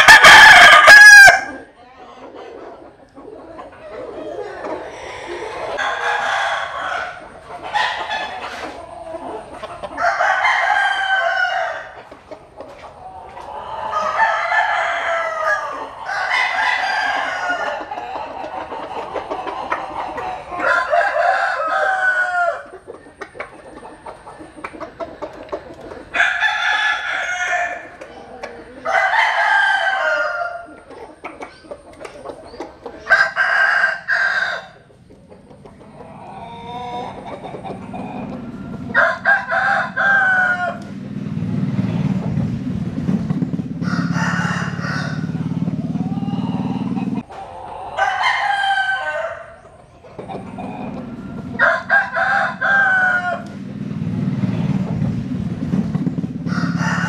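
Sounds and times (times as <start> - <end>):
rooster crowing: 0.0 - 1.7, 5.0 - 8.4, 9.8 - 12.0, 13.6 - 18.3, 20.0 - 22.7, 26.1 - 28.0, 28.8 - 30.7, 33.1 - 34.9, 37.9 - 41.0, 43.8 - 47.2, 47.9 - 49.6, 50.3 - 53.6, 56.4 - 57.0
soft clucking: 22.7 - 26.2, 30.7 - 33.1, 34.8 - 39.0.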